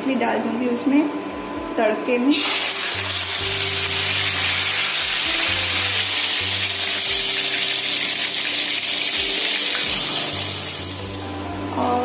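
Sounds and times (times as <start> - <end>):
paste sizzling in hot oil: 2.3 - 11.4.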